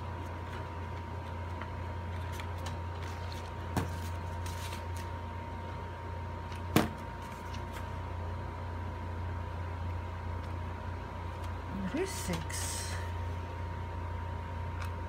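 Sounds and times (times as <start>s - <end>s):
faint steady whine: 0.0s - 15.0s
steady low hum: 0.0s - 15.0s
paper rustling: 0.2s - 5.2s, 7.2s - 8.0s.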